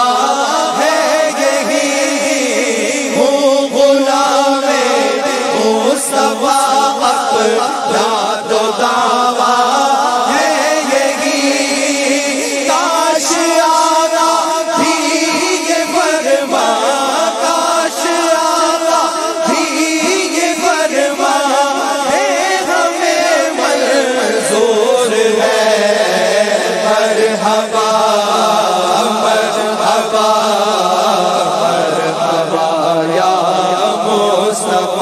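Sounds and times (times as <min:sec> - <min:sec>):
men chanting together: 0:00.0 - 0:35.0.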